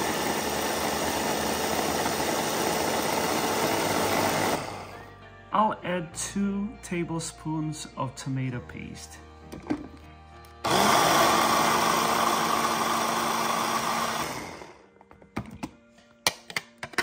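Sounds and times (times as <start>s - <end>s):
electric chopper motor: 0.0s - 4.9s, 10.6s - 14.8s.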